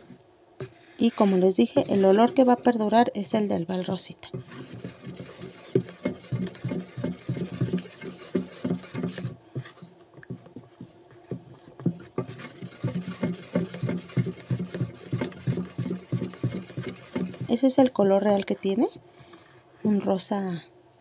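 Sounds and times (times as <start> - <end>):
wooden spoon scraping plastic basin: 0.0 - 18.8.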